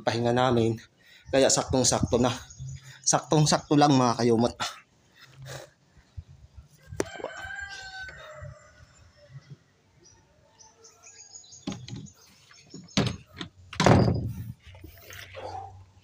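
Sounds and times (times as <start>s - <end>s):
small birds chirping: 0.1s - 16.0s
man breathing heavily: 0.8s - 1.4s, 4.7s - 6.5s
rooster crowing: 6.8s - 9.3s.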